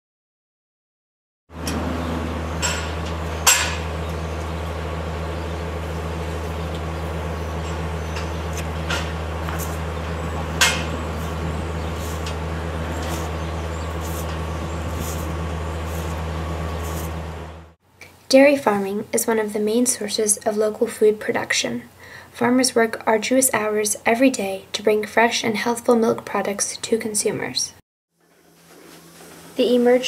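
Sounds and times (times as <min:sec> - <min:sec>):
low machine hum: 0:01.5 - 0:17.8
metallic clanks and clinks: 0:02.6 - 0:03.9.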